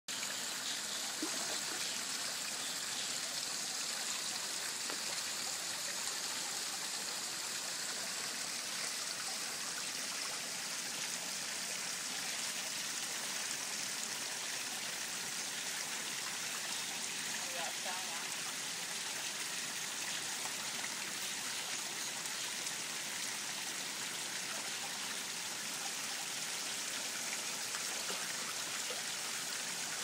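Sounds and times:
water trickling into pond: 0:00.1 - 0:30.0.

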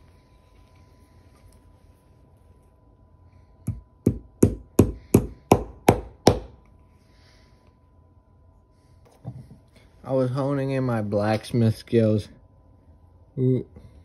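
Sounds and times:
hammer blows driving nails: 0:03.7 - 0:06.6.

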